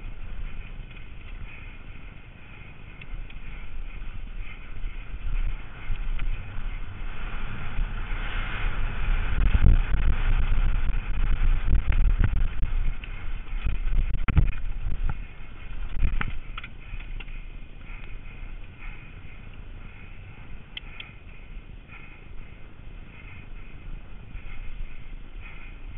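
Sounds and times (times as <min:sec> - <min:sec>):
bike tyres rumbling on dirt: 0:00.0 - 0:25.9
wind on camera microphone: 0:00.0 - 0:25.9
bike clacking over bumps: 0:10.5 - 0:25.8.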